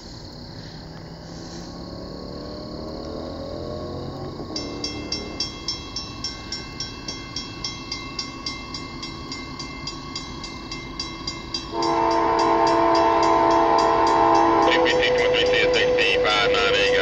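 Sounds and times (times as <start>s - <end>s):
crossing warning bell ringing: 4.4s - 17.0s
locomotive horn chord: 11.6s - 17.0s.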